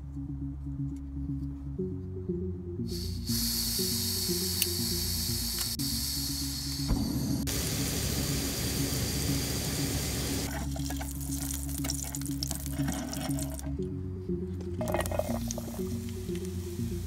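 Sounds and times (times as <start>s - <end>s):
background music: 0.0s - 17.0s
gas stove burner hissing: 2.9s - 10.6s.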